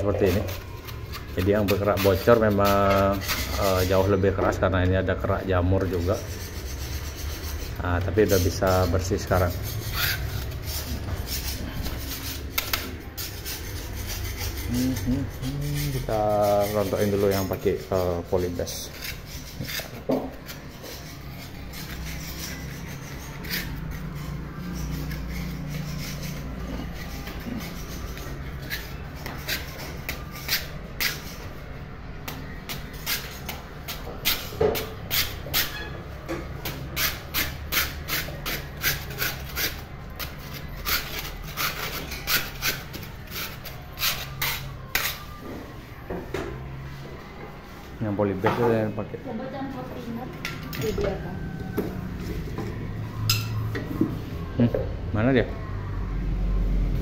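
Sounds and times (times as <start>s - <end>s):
scraper scraping paint off wall: 0.0s - 4.3s, 5.5s - 31.6s.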